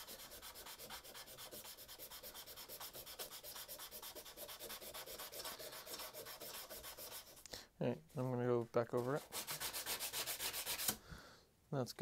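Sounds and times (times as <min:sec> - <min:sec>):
sandpaper scratching on steel: 0:00.0 - 0:07.4, 0:09.2 - 0:11.0.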